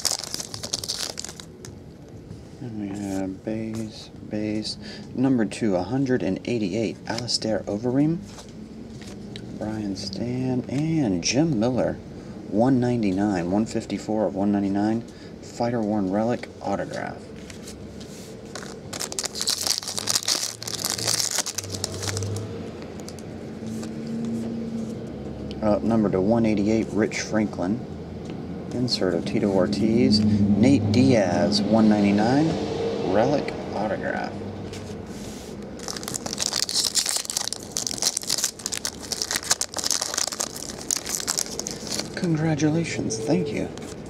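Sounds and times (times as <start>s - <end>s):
foil pack crinkling: 0.0s - 1.8s, 18.5s - 22.4s, 35.6s - 42.3s.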